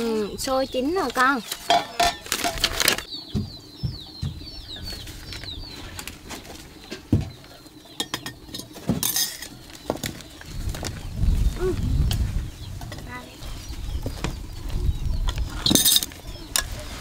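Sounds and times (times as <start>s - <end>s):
small bird chirping: 0.0s - 17.0s
dishes and utensils clinking: 1.5s - 3.1s, 8.0s - 9.6s, 15.6s - 16.8s.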